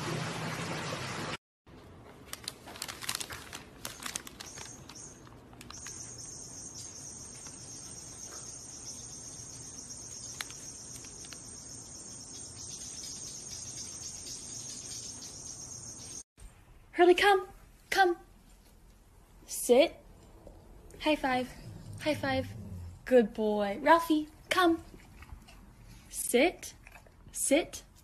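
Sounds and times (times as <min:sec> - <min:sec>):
paper bag crinkling: 0:02.0 - 0:06.1.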